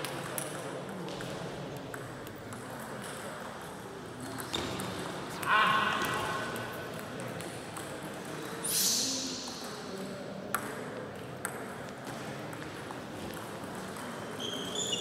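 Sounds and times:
table tennis ball bouncing: 10.5s - 14.8s.

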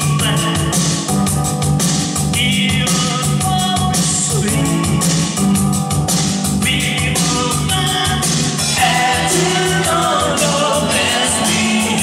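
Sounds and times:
person singing into microphone: 0.0s - 1.1s, 6.6s - 12.0s
pop-rock band playing: 0.0s - 12.0s.

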